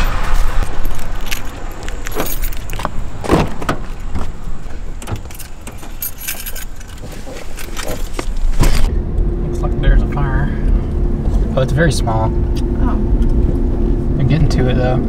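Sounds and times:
car road noise rumble: 0:00.0 - 0:15.0
light clicks and rattles: 0:03.6 - 0:08.9.

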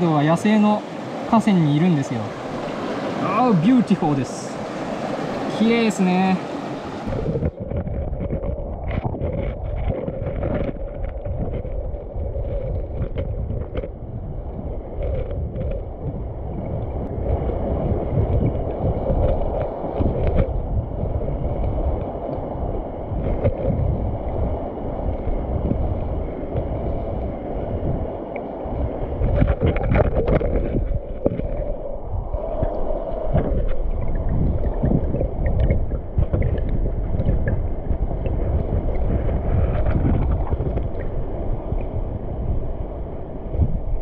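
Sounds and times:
stream flowing over rocks: 0:00.0 - 0:12.1
wind rumbling on microphone: 0:00.0 - 0:44.0
water sloshing: 0:14.7 - 0:42.0.

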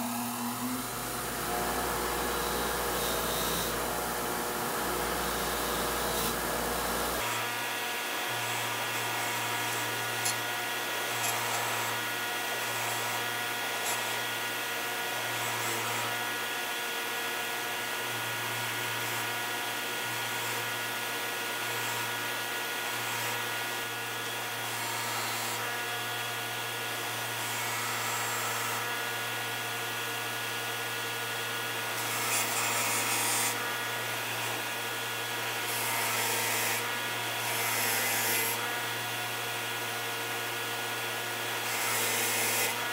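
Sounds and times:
bench grinder motor whining: 0:00.0 - 0:16.8.

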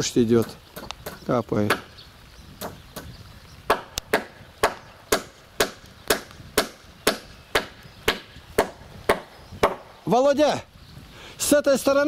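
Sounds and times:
hammer driving nails into wood: 0:03.7 - 0:09.9.

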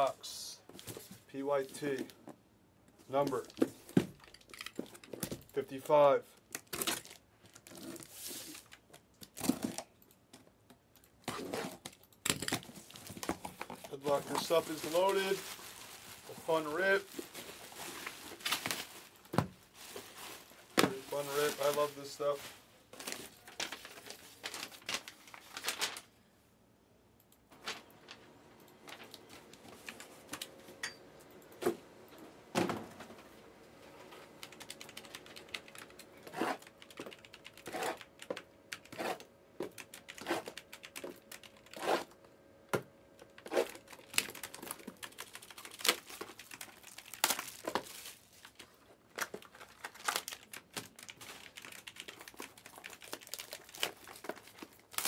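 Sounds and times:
card packs clicking and tapping: 0:11.0 - 0:15.6, 0:42.8 - 0:55.0
wrap and cardboard crinkling: 0:11.3 - 0:26.2, 0:43.3 - 0:55.0.

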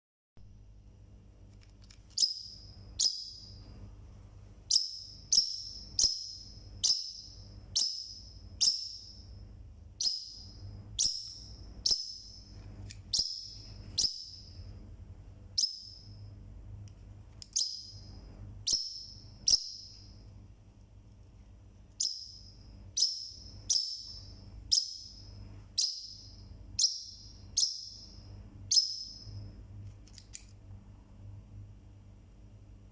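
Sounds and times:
parrotlet chirping: 0:02.1 - 0:03.7, 0:04.6 - 0:09.4, 0:10.0 - 0:14.7, 0:15.6 - 0:16.3, 0:17.5 - 0:20.2, 0:21.9 - 0:29.5.

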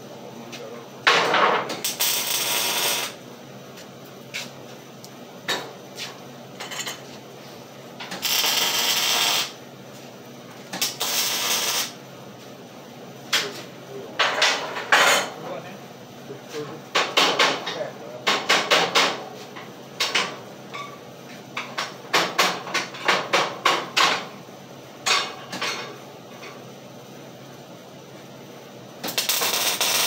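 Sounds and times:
arc welding crackling hiss: 0:01.8 - 0:03.2, 0:08.1 - 0:09.6, 0:10.7 - 0:12.0, 0:29.0 - 0:30.0.

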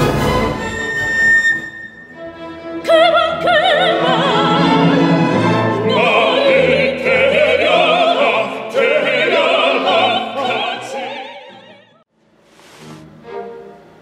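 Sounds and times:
orchestra playing: 0:00.0 - 0:06.9, 0:12.4 - 0:14.0
operatic singing: 0:02.8 - 0:12.0.

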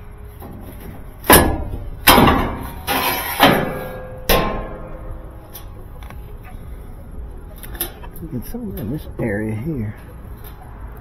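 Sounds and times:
sheet metal panel banging: 0:00.4 - 0:05.7.

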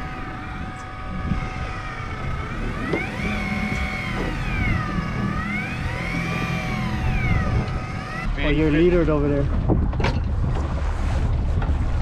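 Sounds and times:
fishing reel motor whining: 0:00.0 - 0:09.0.

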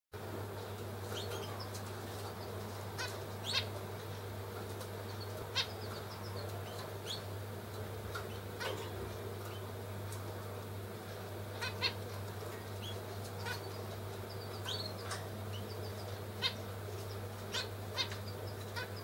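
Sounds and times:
steady low hum: 0:00.2 - 0:19.0
finch calls: 0:01.1 - 0:03.9, 0:04.8 - 0:07.4, 0:08.1 - 0:09.8, 0:11.4 - 0:19.0.

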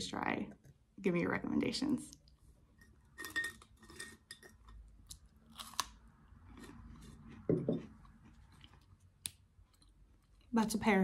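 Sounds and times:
crisp crunching of chewing: 0:05.0 - 0:10.6.

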